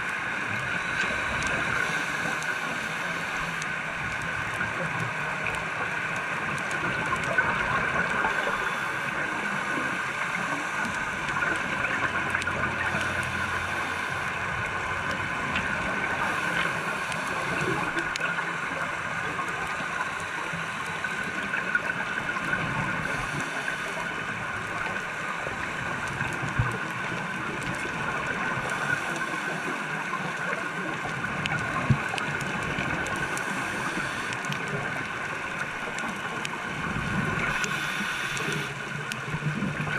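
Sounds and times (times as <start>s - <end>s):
faint clicks: 0.0s - 39.9s
underwater hiss: 0.3s - 3.8s, 7.4s - 14.7s, 15.6s - 27.2s, 28.6s - 35.6s, 36.8s - 39.1s.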